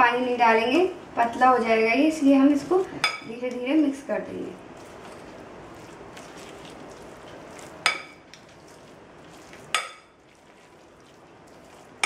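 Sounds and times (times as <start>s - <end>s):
spoon stirring batter: 4.6s - 12.0s.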